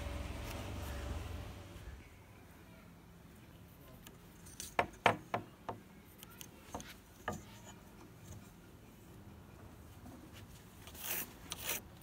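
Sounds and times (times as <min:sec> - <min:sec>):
ruler and pencil tapping on wood: 0:04.6 - 0:05.8, 0:06.7 - 0:07.7.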